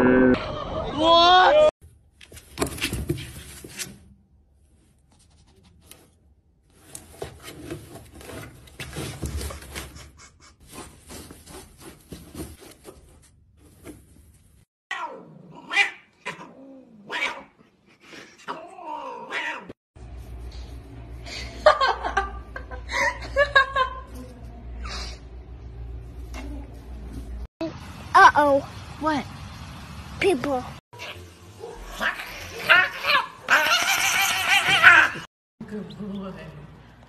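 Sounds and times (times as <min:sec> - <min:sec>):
cat rustling in cardboard box: 0:10.6 - 0:14.4
cat yowling: 0:14.9 - 0:17.5, 0:18.5 - 0:19.7, 0:31.0 - 0:35.3.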